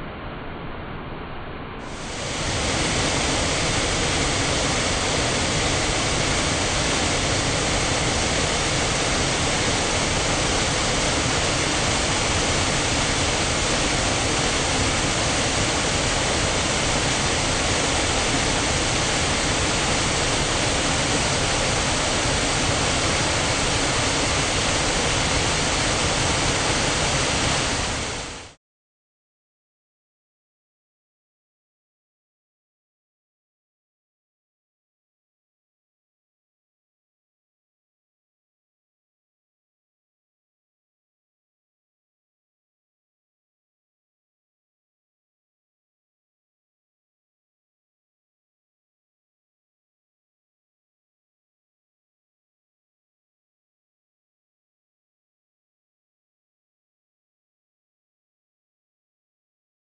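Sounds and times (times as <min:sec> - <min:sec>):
water rushing over a weir: 0:01.9 - 0:28.6.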